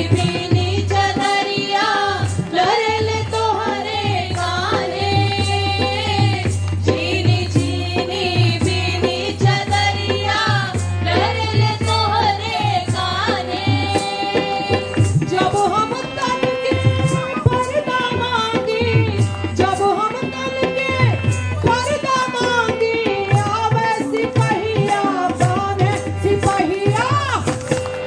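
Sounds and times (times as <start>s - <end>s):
group singing: 0.0s - 19.8s
hand drum rhythm: 0.0s - 28.0s
harmonium: 0.0s - 28.0s.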